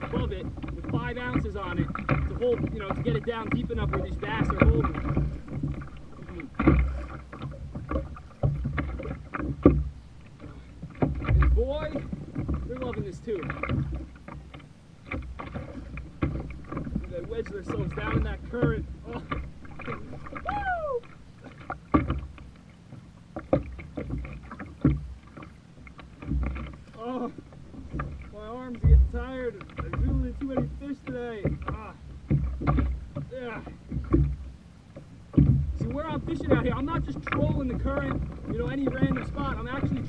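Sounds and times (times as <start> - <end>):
water slapping kayak hull: 0.0 - 40.0
wind rumble on microphone: 27.9 - 30.8.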